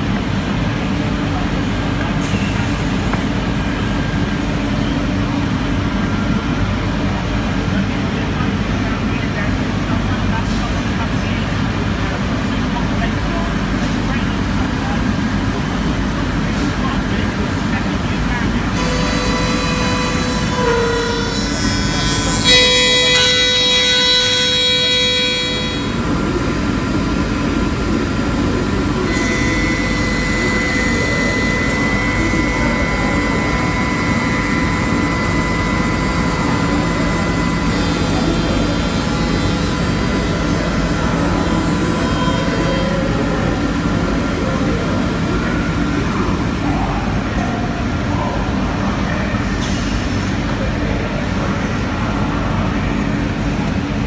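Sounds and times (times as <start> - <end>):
milling machine whining: 14.6 - 50.0.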